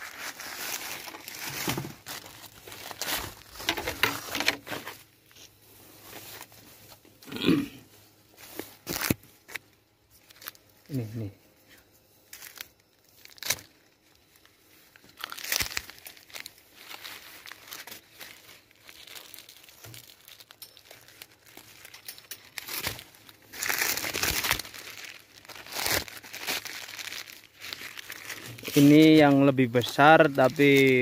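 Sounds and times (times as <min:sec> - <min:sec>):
leaves brushing: 0:00.0 - 0:07.0, 0:12.3 - 0:31.0
paper bags crinkling: 0:00.0 - 0:07.0, 0:08.4 - 0:09.6, 0:12.3 - 0:31.0.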